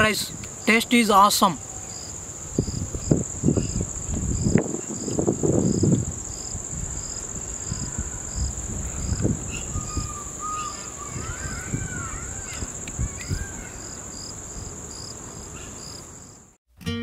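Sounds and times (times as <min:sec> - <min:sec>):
insect chirping: 0:00.0 - 0:16.6
insect high drone: 0:00.0 - 0:16.6.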